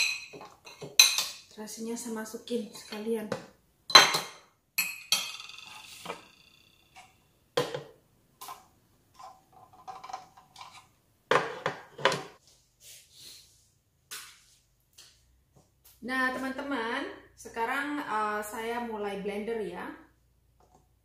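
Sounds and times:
plate clinking down: 3.9s - 7.1s.

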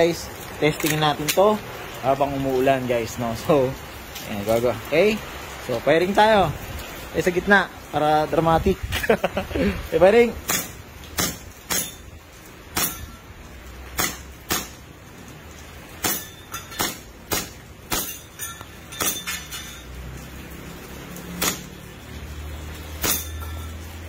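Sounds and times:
airsoft pistol shots: 14.0s - 14.8s, 21.4s - 21.7s.

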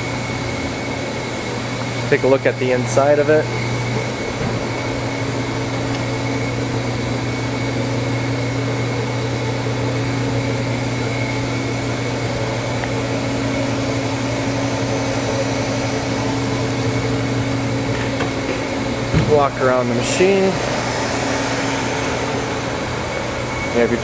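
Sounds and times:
machinery low drone: 0.0s - 24.0s
faint high whine: 18.8s - 24.0s.

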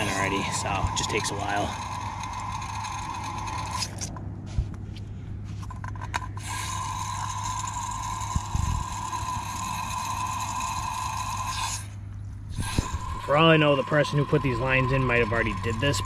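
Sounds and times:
water hissing through a valve: 12.5s - 14.0s.

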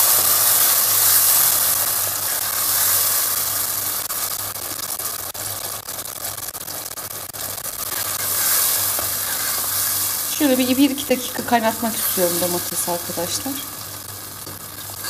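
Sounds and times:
sauce sizzling in oil: 0.0s - 15.0s.

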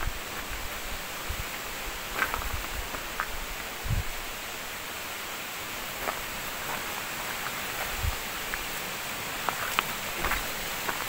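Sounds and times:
waterfall rushing: 0.0s - 11.0s
footsteps on metal stairs: 9.5s - 11.0s.

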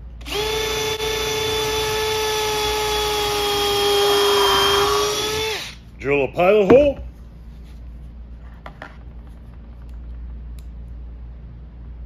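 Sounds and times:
cordless drill drilling into wood: 0.2s - 5.8s.

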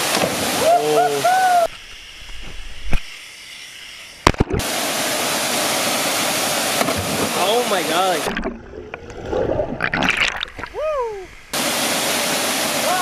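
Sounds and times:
waterfall rushing: 0.0s - 1.7s, 4.6s - 8.3s, 11.6s - 13.0s
person shouting: 0.6s - 1.7s, 10.7s - 11.3s.

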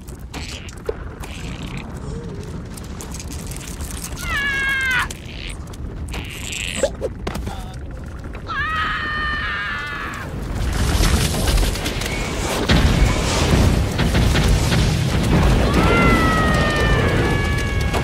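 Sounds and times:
ice breaking with crashing rumble: 0.0s - 18.0s
sharp cracks: 9.8s - 18.0s.

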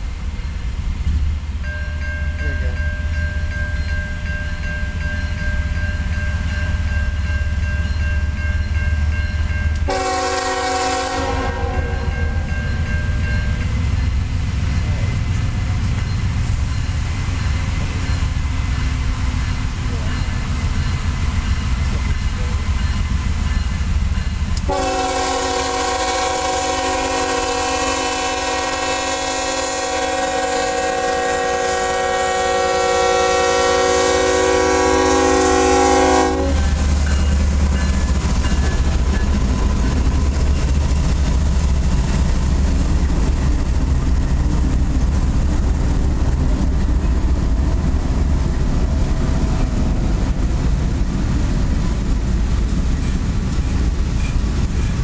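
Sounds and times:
freight cars rolling on rails: 0.0s - 55.0s
locomotives rumbling past: 0.0s - 55.0s
locomotive chime horn: 1.6s - 13.8s, 24.6s - 38.8s.

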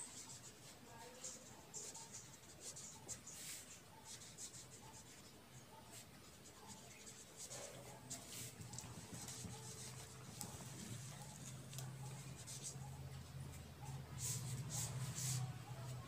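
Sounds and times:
pen writing on paper: 6.7s - 12.9s.

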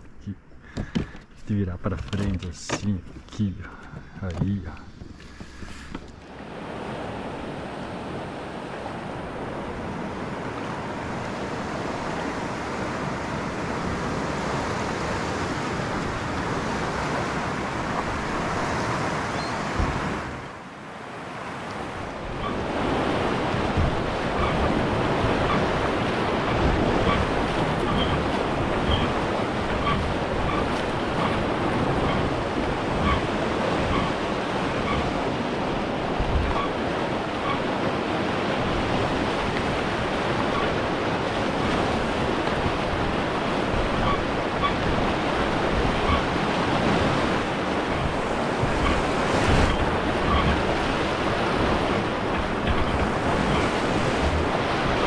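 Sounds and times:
river water rushing: 5.3s - 55.0s
wind on microphone: 22.0s - 55.0s.

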